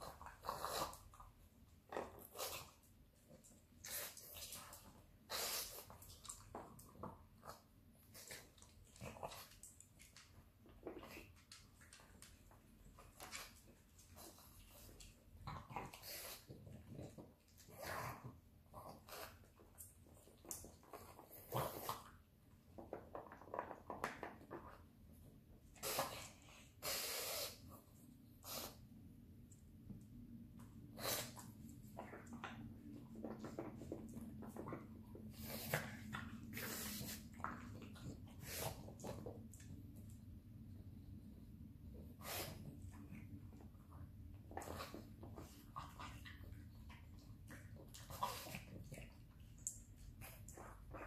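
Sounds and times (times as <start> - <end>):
dog sniffing and snorting: 0.0 - 6.8, 13.0 - 22.3, 25.6 - 28.9, 30.8 - 39.4, 42.0 - 43.4, 44.4 - 49.4
dog snorting: 33.2 - 39.1.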